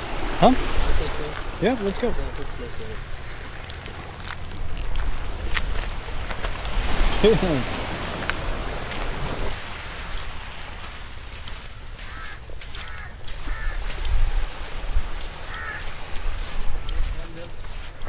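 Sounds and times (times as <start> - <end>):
crows cawing: 11.9 - 14.2, 15.3 - 16.6.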